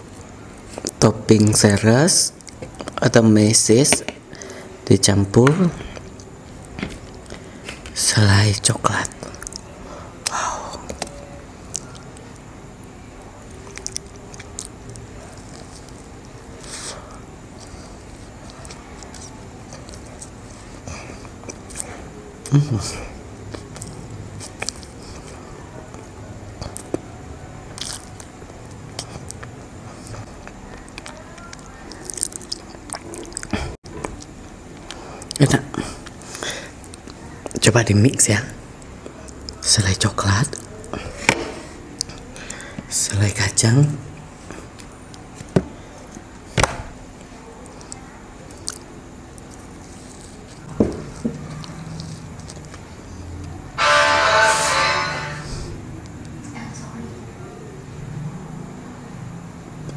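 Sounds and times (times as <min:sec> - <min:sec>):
person chewing: 0:09.0 - 0:12.4, 0:13.4 - 0:27.0, 0:27.7 - 0:37.6, 0:47.2 - 0:52.9
mouth clicks and smacks: 0:27.8 - 0:37.6.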